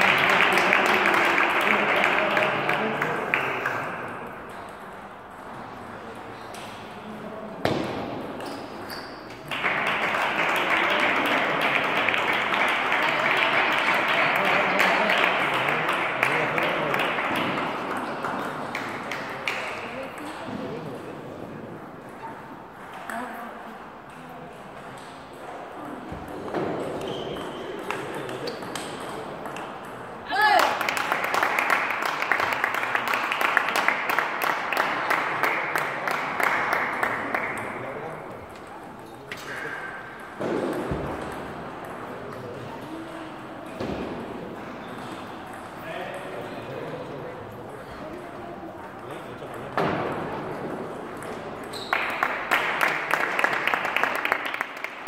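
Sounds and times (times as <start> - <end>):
applause: 0.0 - 4.1, 9.4 - 19.8, 30.5 - 38.1, 51.8 - 55.0
table tennis ball hit with paddle: 40.2 - 42.0.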